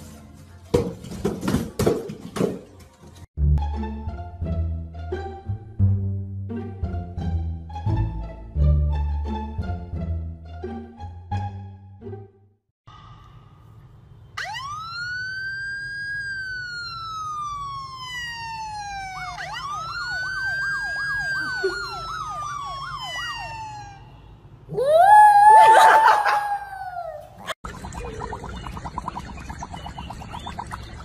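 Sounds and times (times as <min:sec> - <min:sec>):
electronic siren wailing: 0:14.4 - 0:27.2
siren warbling yelp: 0:14.4 - 0:28.5
dog howling: 0:24.7 - 0:27.4.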